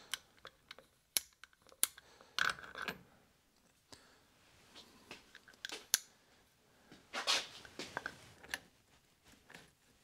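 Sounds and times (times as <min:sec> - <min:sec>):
metal parts clicking together: 0:00.1 - 0:03.0.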